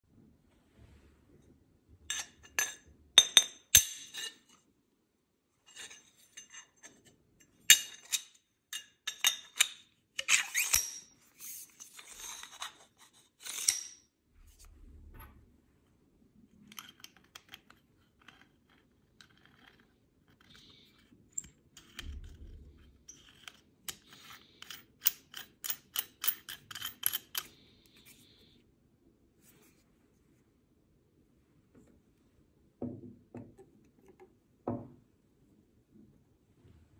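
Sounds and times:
metal tubes clinking and scraping: 2.1 - 4.6, 5.7 - 14.1, 23.1 - 28.3.

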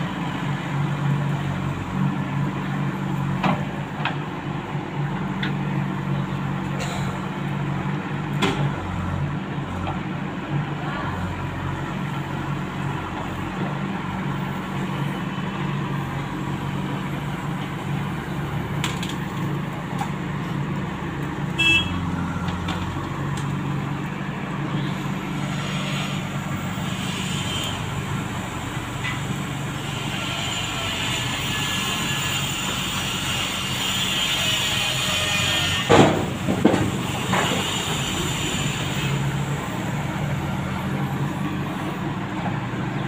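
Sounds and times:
diesel engine running: 0.0 - 43.0
horn toot: 21.6 - 22.0.

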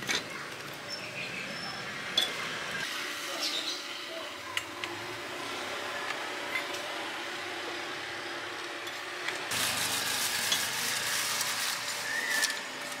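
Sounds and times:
batter sizzling and crackling: 9.5 - 13.0.

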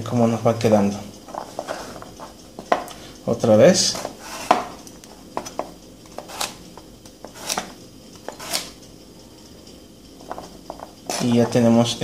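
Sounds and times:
knife slicing carrot: 6.2 - 6.6.

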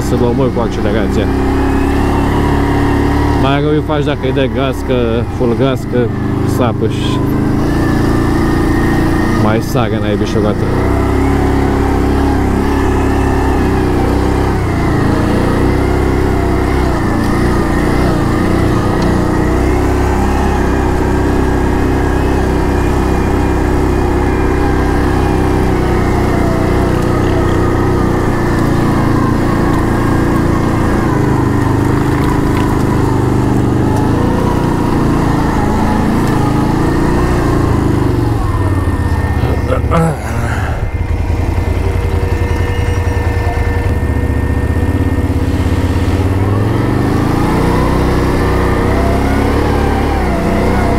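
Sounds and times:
atv engine running: 0.0 - 50.9.

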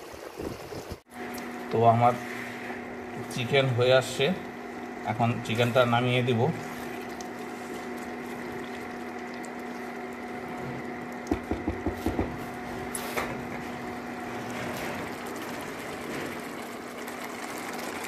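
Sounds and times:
induction cooktop humming: 0.2 - 18.0
spatula tapping on pan: 11.3 - 12.4.

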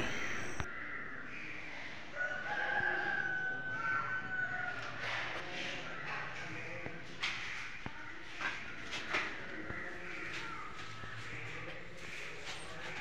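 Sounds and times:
distant animal call: 0.0 - 4.8.

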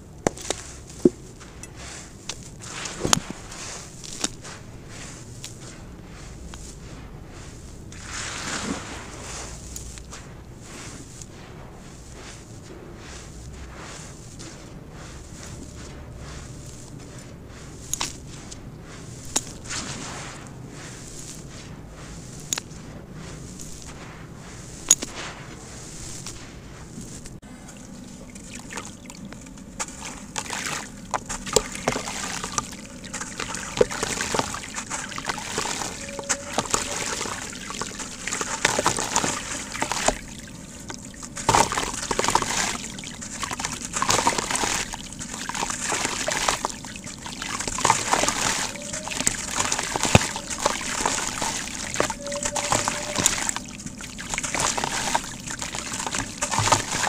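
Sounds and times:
crumbling block crunching: 0.0 - 12.5, 28.6 - 57.0
water sloshing and splashing: 0.0 - 57.0.

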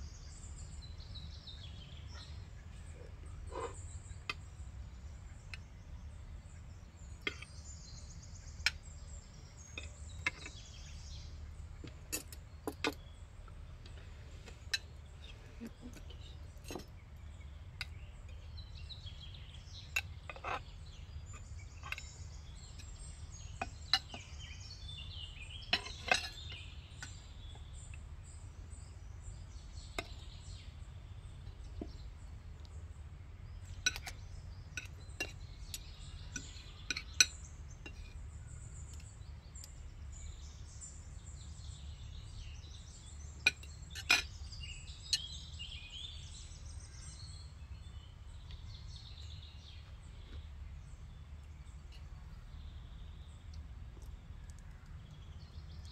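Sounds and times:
birds chirping: 0.0 - 55.9
cutlery clinking on plates: 25.7 - 26.6, 43.5 - 44.4.

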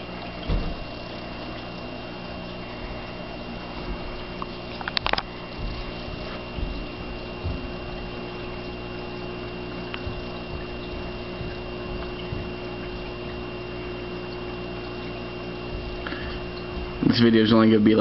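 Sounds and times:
aquarium filter pump running: 0.0 - 18.0
low hum: 0.0 - 18.0
water trickling: 0.0 - 18.0
faint ticks: 4.3 - 15.2.

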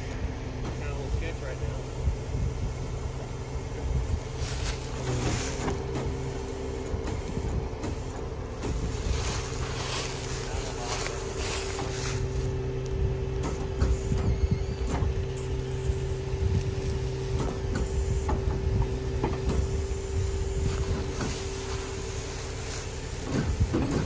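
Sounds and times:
low engine rumble: 0.0 - 24.0
machinery whine: 0.0 - 24.0
knocks and clanks: 13.4 - 15.4, 17.3 - 19.8.

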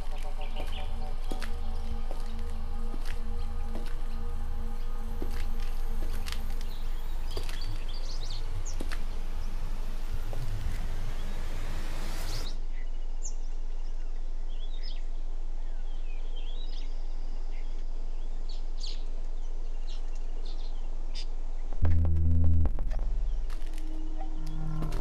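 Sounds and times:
birds chirping: 0.0 - 12.6
steady low hum: 0.0 - 12.8, 21.7 - 25.0
loud hiss: 7.9 - 12.6.

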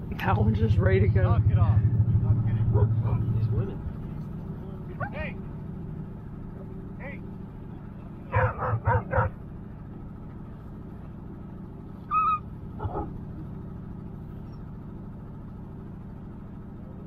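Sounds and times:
low engine hum: 0.0 - 17.0
sled dogs barking: 2.6 - 3.3, 4.9 - 5.5, 8.1 - 9.7, 12.0 - 13.6
dog whining: 12.0 - 13.2.

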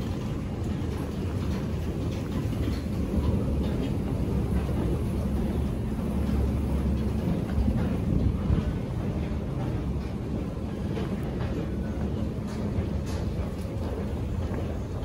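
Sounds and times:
subway station rumble: 0.0 - 15.0.

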